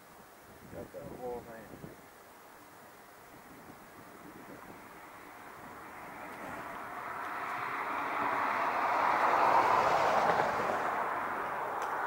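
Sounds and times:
passing vehicle rushing: 4.7 - 12.0.

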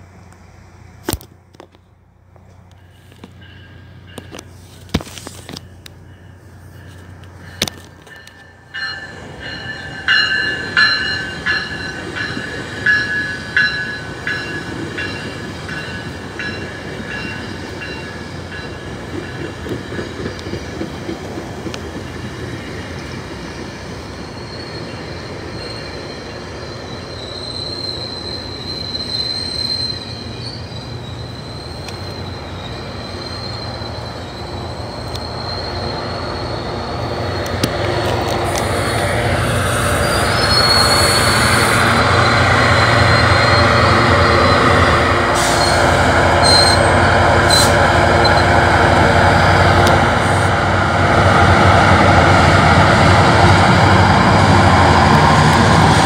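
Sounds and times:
train cars rumbling: 0.0 - 56.0
high-pitched metallic squealing: 23.8 - 48.6.

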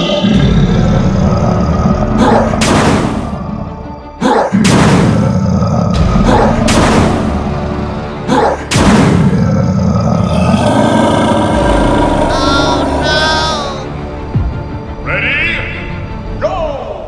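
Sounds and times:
background music: 0.0 - 17.0.

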